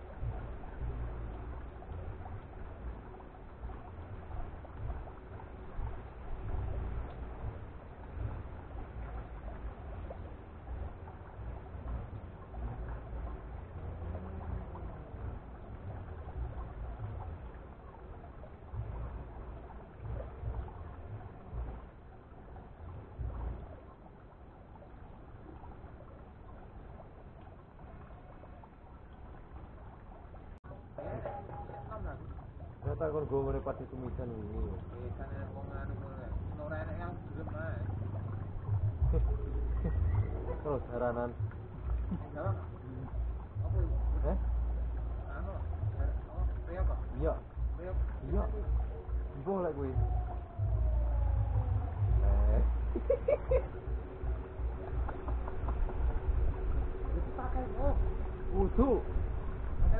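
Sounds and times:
wind on microphone: 0.0s - 24.2s, 29.6s - 59.9s
water splashing in pond: 0.0s - 59.9s.

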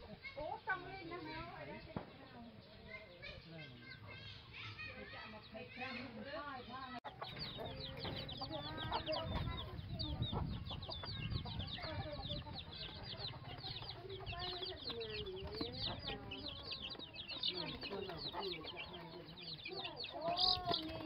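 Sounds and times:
chicks peeping: 0.0s - 21.0s
hen clucking: 7.0s - 21.0s.

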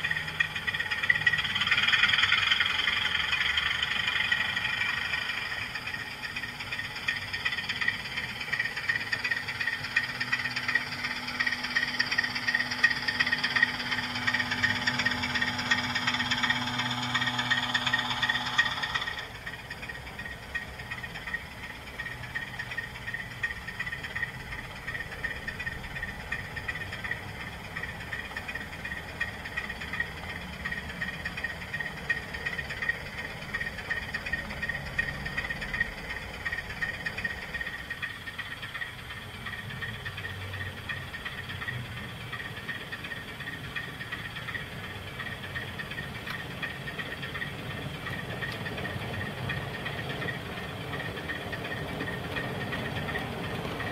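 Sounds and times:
high pulsing tone: 0.0s - 28.0s
model train motor whirring: 0.0s - 53.9s.

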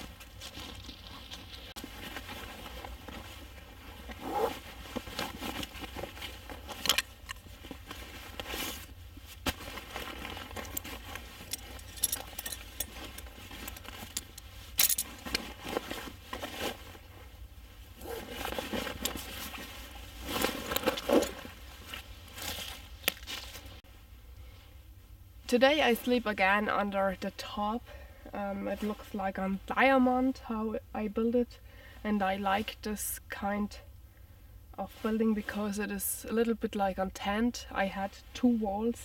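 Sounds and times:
rustling and scraping: 0.0s - 24.0s
light metallic jingling: 11.4s - 13.3s.

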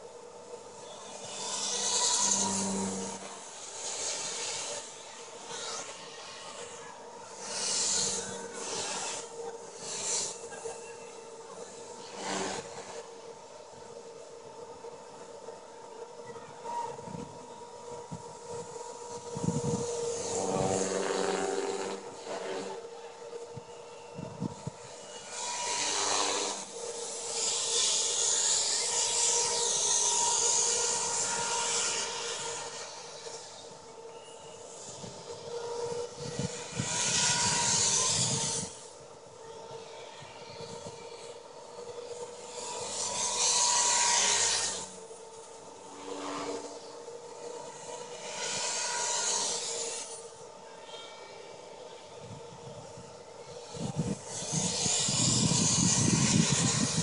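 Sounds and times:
helicopter motor and rotor whine: 0.0s - 31.5s, 51.7s - 57.0s.

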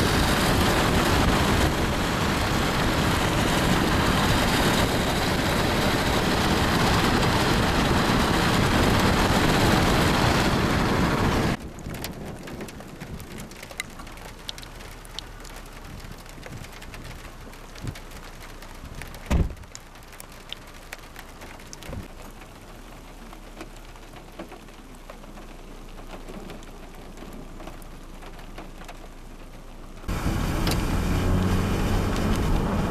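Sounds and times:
raindrops ticking: 11.5s - 30.9s
dull thump: 19.2s - 19.6s.

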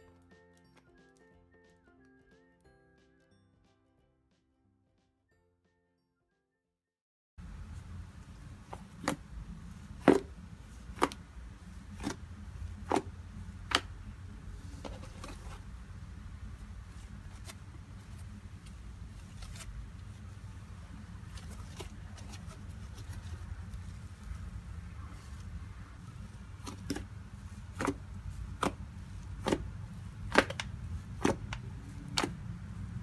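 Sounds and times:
steady low hum: 7.4s - 33.0s.

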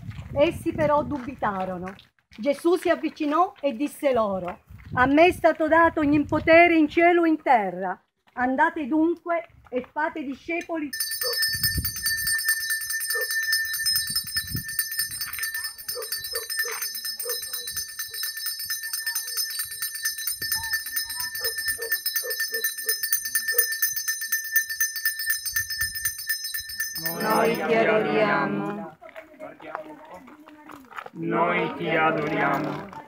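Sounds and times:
hand bells jingling: 10.9s - 28.2s.

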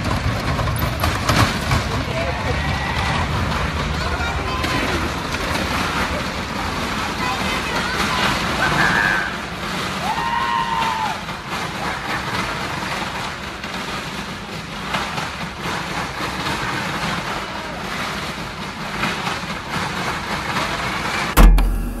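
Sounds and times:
vehicle engines droning: 0.0s - 6.7s
loud low boom: 21.4s - 22.0s.

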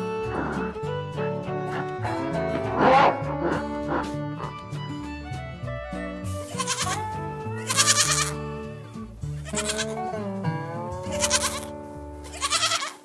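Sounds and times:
background music: 0.0s - 13.0s
goat bleating: 6.2s - 8.6s, 9.3s - 10.2s, 11.0s - 13.0s.

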